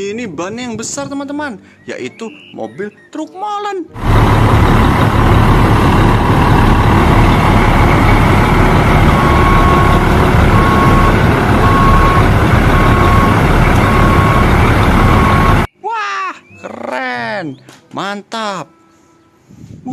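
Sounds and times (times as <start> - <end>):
diesel truck engine running: 4.0 - 15.7
reversing alarm beeping: 4.2 - 15.7.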